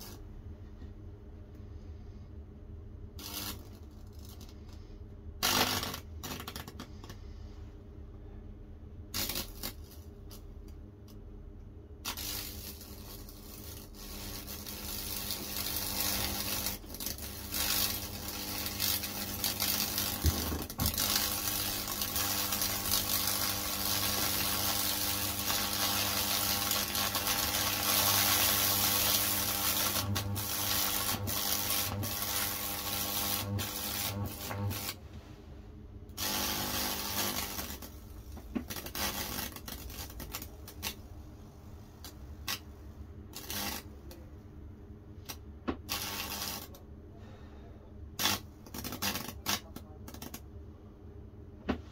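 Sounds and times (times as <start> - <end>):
electric arc crackling sizzle: 0.0 - 0.3, 3.1 - 4.8, 5.4 - 6.8, 9.1 - 10.7, 12.0 - 35.0, 36.1 - 41.1, 42.0 - 44.2, 45.2 - 46.8, 48.2 - 50.4
electrical hum: 0.0 - 51.9.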